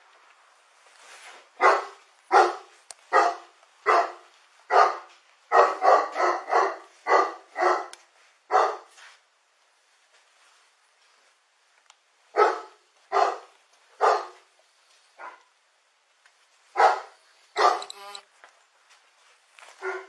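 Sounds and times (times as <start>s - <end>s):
dog barking: 1.6s - 8.9s, 12.3s - 14.4s, 15.2s - 15.5s, 16.7s - 17.9s, 19.8s - 20.0s.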